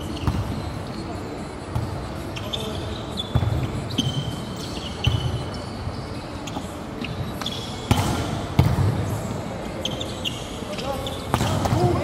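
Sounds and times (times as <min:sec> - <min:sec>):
sneakers squeaking on court: 0:00.0 - 0:12.0
volleyball hits: 0:07.9 - 0:08.9.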